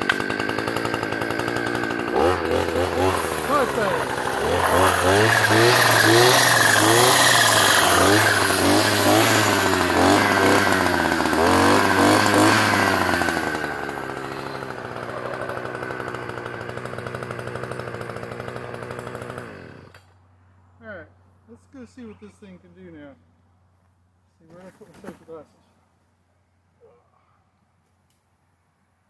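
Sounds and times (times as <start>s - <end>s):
string trimmer engine revving: 0.0s - 20.0s.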